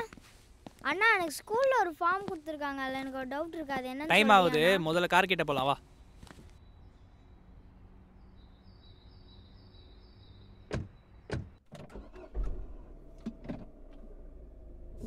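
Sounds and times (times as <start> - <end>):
car doors shutting: 10.7 - 15.0
car engine starting and idling: 11.6 - 15.0.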